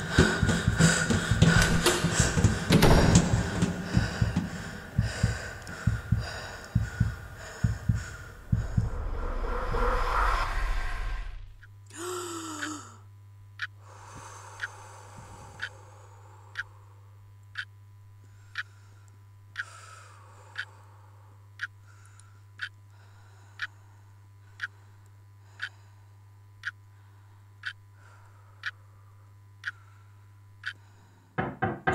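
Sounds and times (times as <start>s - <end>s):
low steady hum: 0.0s - 31.4s.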